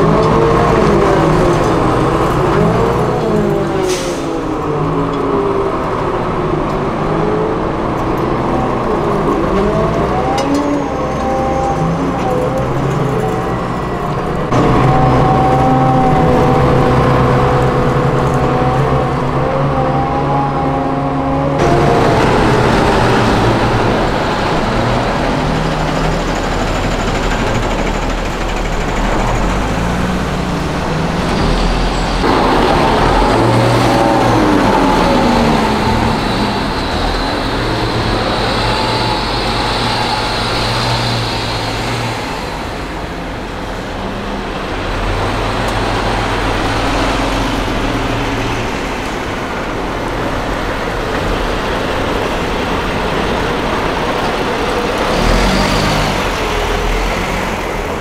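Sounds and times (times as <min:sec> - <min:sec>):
armoured vehicle engine drone: 0:00.0 - 0:58.0
military truck engines: 0:00.0 - 0:58.0.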